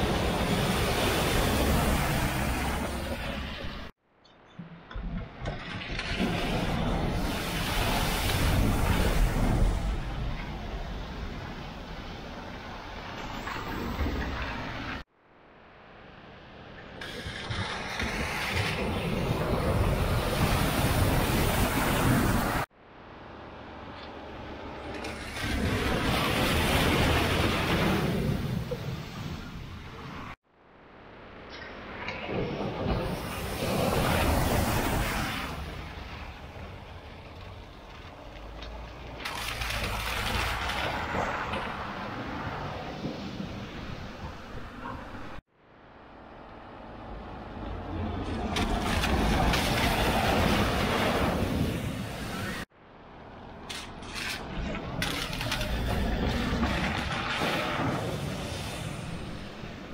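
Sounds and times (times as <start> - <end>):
tyres hissing on wet road: 0.0 - 3.6, 6.8 - 10.2, 33.0 - 37.2, 57.2 - 59.9
water splashing and rushing: 0.0 - 4.0, 4.8 - 59.9
water splashing from tyres: 5.8 - 13.4, 33.0 - 44.1, 47.5 - 52.7
wet tyres hissing on road: 57.6 - 59.8.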